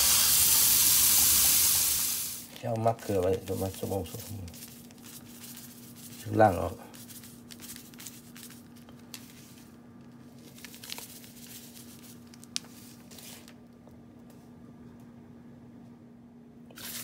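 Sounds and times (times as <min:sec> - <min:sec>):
salt pouring onto fish: 0:00.0 - 0:02.4.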